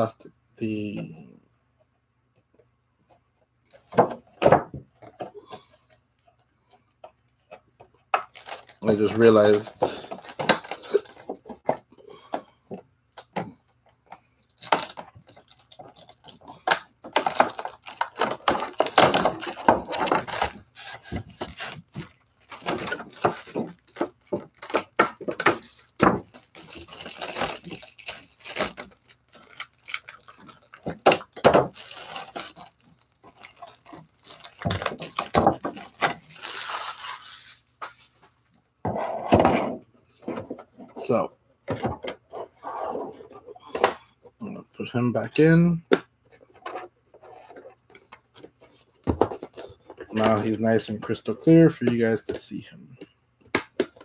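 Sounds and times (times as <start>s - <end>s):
plastic crinkling and tearing: 8.2s - 11.5s, 14.4s - 37.7s.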